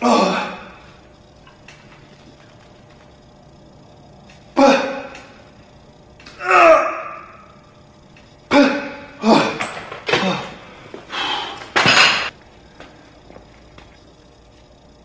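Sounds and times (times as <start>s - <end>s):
man groaning: 0.0s - 0.8s, 4.6s - 5.2s, 6.4s - 7.4s
man grunting and exhaling: 0.0s - 0.9s, 4.6s - 5.2s, 8.5s - 11.8s
dumbbells clunking down: 11.7s - 12.3s.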